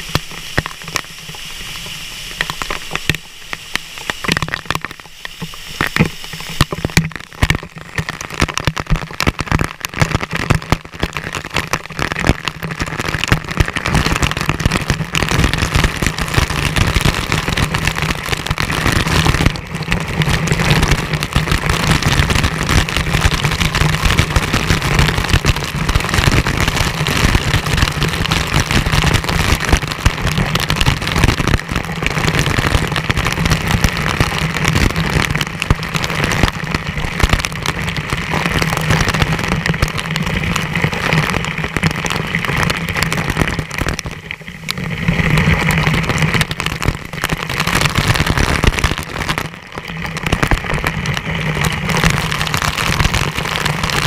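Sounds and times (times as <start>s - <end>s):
waterfall rushing onto camera: 0.0s - 54.0s.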